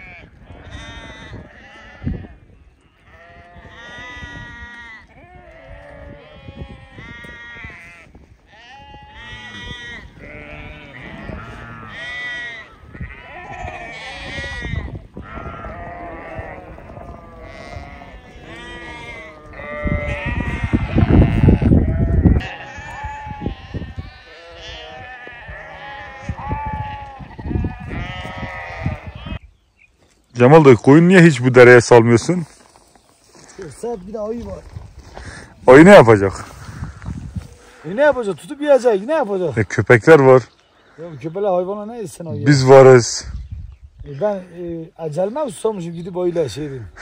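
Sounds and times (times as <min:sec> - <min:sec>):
sheep bleating: 0:00.0 - 0:29.5.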